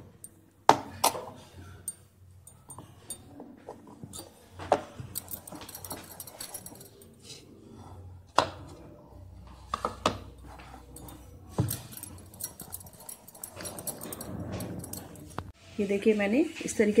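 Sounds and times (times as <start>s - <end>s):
rolling pin rolling dough: 2.4s - 15.5s.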